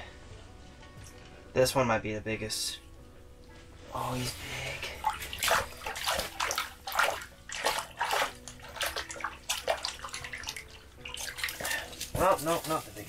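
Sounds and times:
fish splashing in water: 0:04.9 - 0:12.3.

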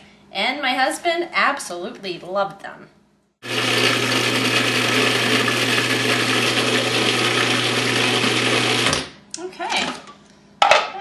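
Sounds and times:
food processor whirring: 0:03.4 - 0:09.2.

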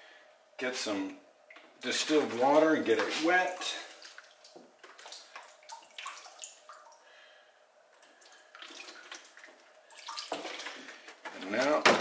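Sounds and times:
water pouring from a jug: 0:08.0 - 0:11.1.

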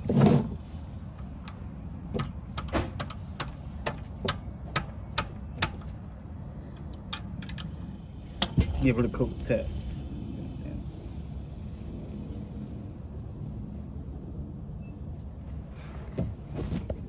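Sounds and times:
ratchet wrench clicking: 0:06.8 - 0:08.8.

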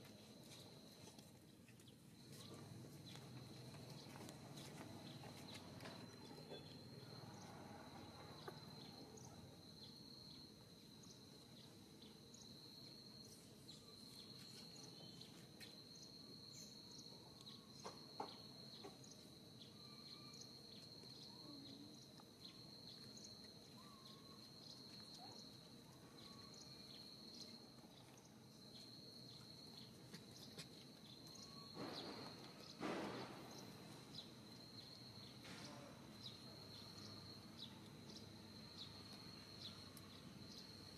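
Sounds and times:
insect chirring: 0:06.0 - 0:40.9.

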